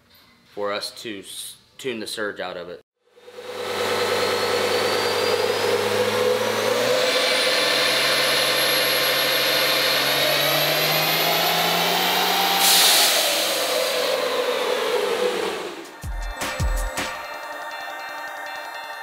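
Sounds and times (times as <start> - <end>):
high turbo whine: 3.1 - 16.9
diesel engine under load: 3.3 - 15.9
loud burst of hiss: 12.6 - 14.1.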